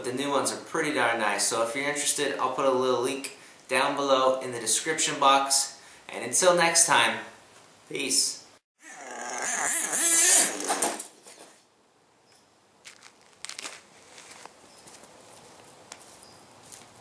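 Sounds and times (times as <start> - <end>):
faint hiss: 0.2 - 8.6.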